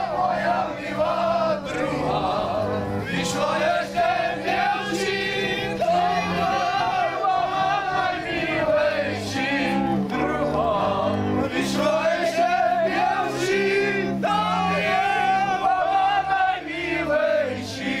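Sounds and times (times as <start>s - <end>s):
group singing folk song: 0.0s - 18.0s
double bass playing low notes: 1.0s - 4.6s.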